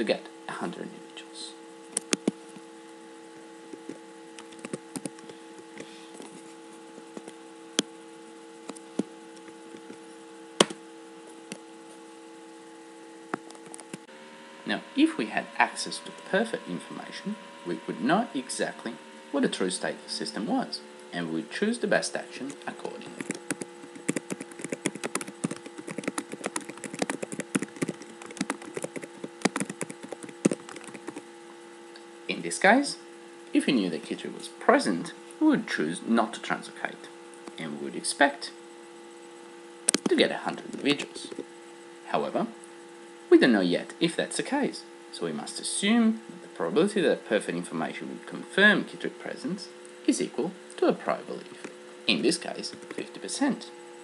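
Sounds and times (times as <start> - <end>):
steady electrical hum: 0.0 - 54.0
keyboard keys and mouse clicking: 2.0 - 2.4, 3.8 - 5.3, 22.5 - 31.2.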